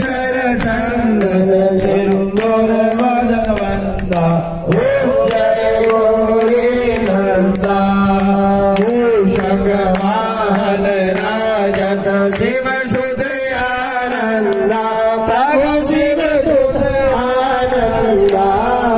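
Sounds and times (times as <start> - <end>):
steady held drone: 0.0 - 18.9.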